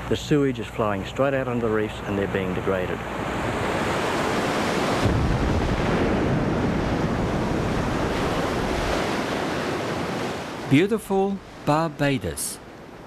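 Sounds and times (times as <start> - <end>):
surf breaking against rock: 4.0 - 10.5.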